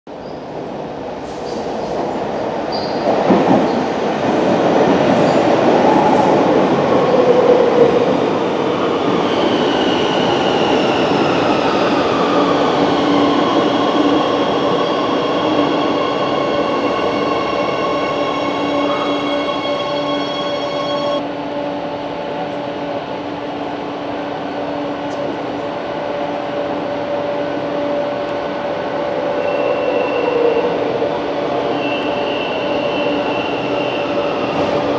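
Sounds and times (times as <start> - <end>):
train wheels rumbling on rail: 0.1 - 34.9
electric train whine: 8.5 - 34.9.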